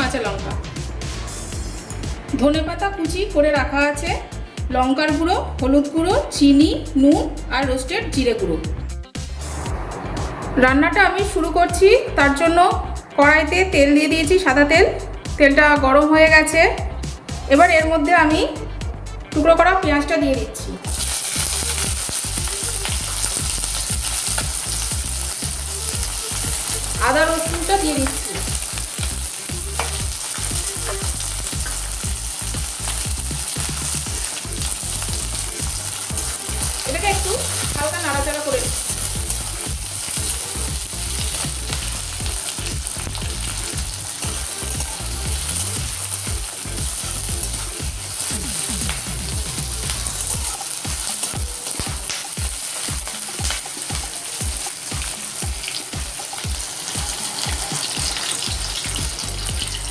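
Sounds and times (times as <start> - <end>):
food sizzling in hot oil: 19.6 - 59.9.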